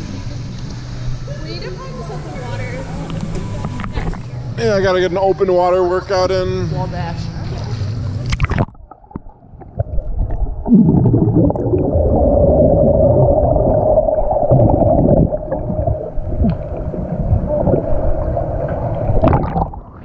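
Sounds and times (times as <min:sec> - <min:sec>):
steady hum: 0:00.0 - 0:20.0
underwater bubbles and churning water: 0:07.7 - 0:20.0.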